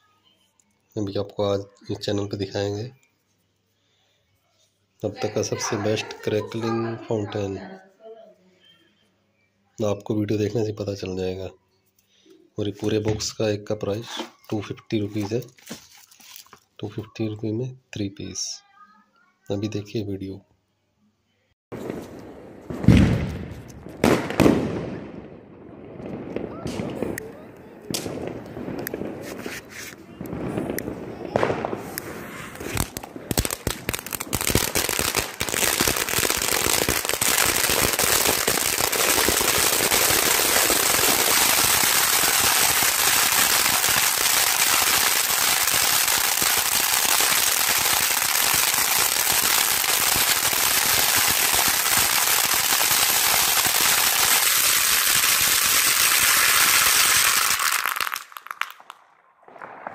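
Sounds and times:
crackling fountain firework: 21.8 - 59.9.

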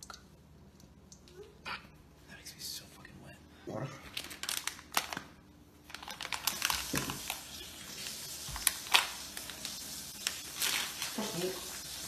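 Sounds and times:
packet crinkling and rustling: 4.1 - 12.0.

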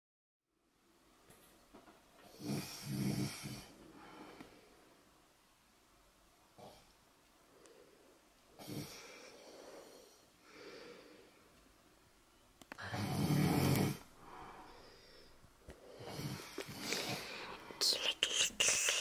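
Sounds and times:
baby breathing with soft snores: 12.8 - 19.0.

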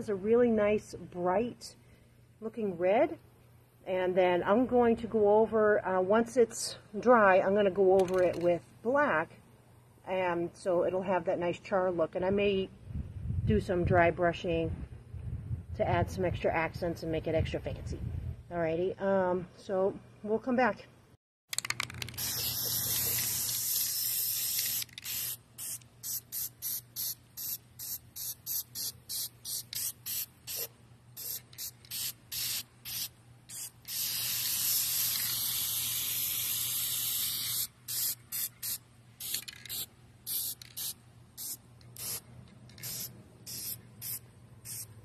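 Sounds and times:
spray paint can hissing: 21.6 - 44.9.

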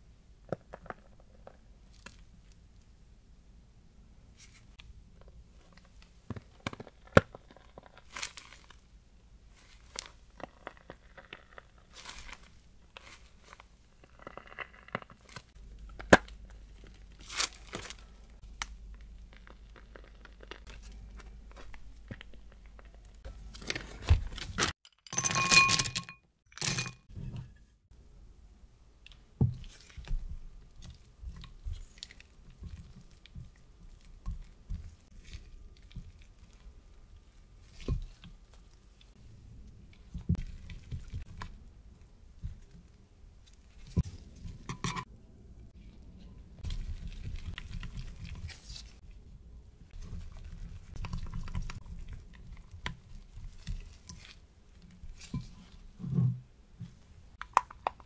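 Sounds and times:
crunches of pastry shells: 5.6 - 24.0, 45.7 - 49.1.

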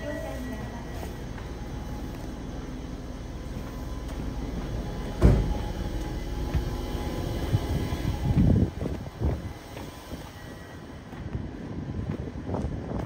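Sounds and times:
train equipment low hum: 0.0 - 13.0
sharp thump: 5.2 - 5.6.

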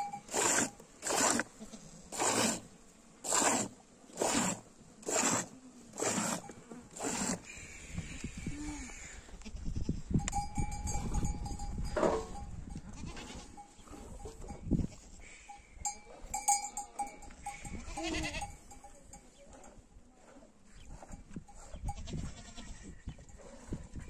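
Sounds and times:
goat bells clinking: 0.0 - 0.3, 10.2 - 14.7, 15.3 - 19.4
goats bleating: 17.5 - 18.6.

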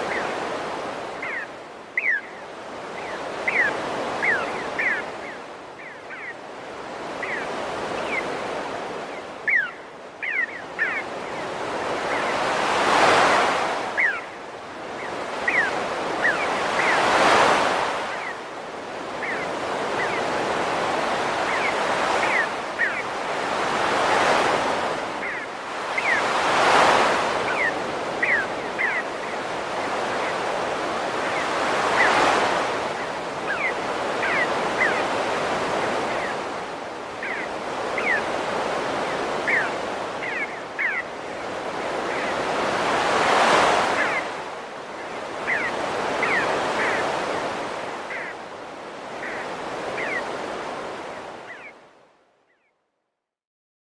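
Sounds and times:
sea waves breaking on shore: 0.0 - 52.1
high chirping bird calls: 1.2 - 6.4, 7.0 - 8.4, 9.0 - 13.4, 14.0 - 14.3, 15.0 - 18.4, 19.2 - 23.2, 25.2 - 30.6, 33.4 - 35.2, 37.2 - 38.4, 39.2 - 41.1, 45.4 - 47.4, 49.2 - 50.3.

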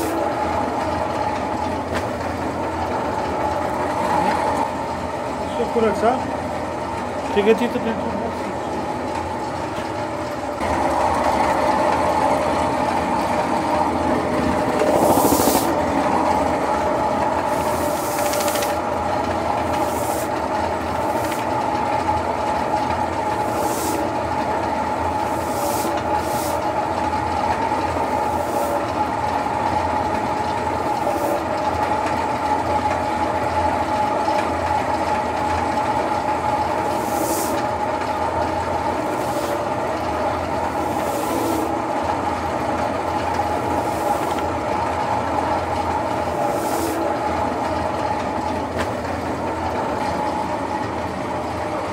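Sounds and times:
machine droning hum: 0.0 - 51.9
short hisses: 14.9 - 15.7.

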